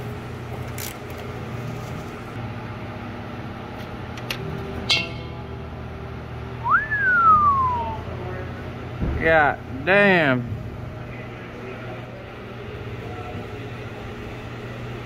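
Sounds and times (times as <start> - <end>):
steady low hum: 0.0 - 15.0
ratchet clicks: 0.6 - 1.3.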